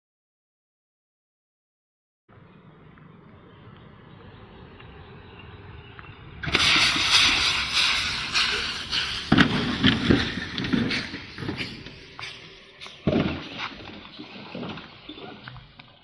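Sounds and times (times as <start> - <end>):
car crashing through tree: 6.4 - 11.9
heavy thumps: 7.0 - 15.7.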